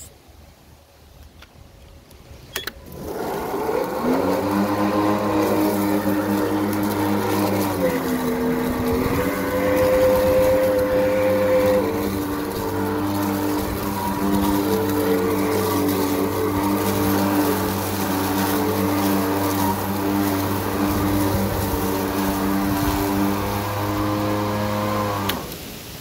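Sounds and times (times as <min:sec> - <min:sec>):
lawnmower switch click: 0:02.5 - 0:02.8
electric lawnmower whining: 0:02.6 - 0:25.9.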